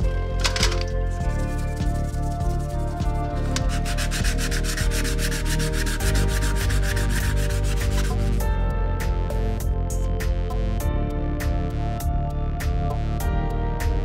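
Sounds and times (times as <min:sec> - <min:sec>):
background music with held tones: 0:00.0 - 0:14.0
hand rubbing metal tube: 0:00.4 - 0:08.3
brush scrubbing bicycle parts: 0:00.4 - 0:08.4.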